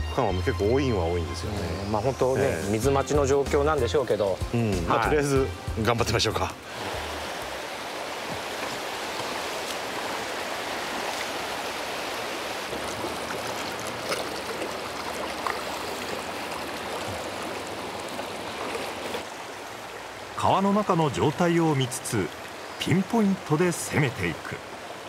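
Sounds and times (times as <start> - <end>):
river rushing over rocks: 6.2 - 25.0.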